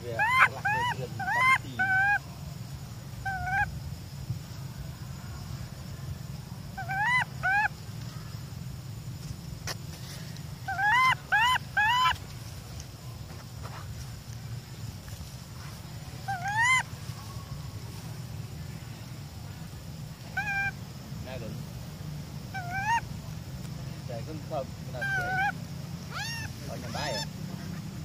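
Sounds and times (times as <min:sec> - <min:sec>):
baby monkey crying: 0:00.1 - 0:02.2, 0:03.2 - 0:03.7, 0:06.8 - 0:07.7, 0:10.7 - 0:12.2, 0:16.3 - 0:16.9, 0:20.3 - 0:20.8, 0:22.5 - 0:23.0, 0:24.9 - 0:27.3.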